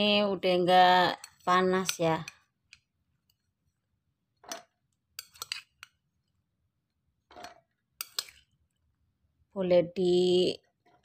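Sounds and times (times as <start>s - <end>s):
metal spoon clinking against dishes: 4.5s - 6.0s, 7.4s - 8.5s.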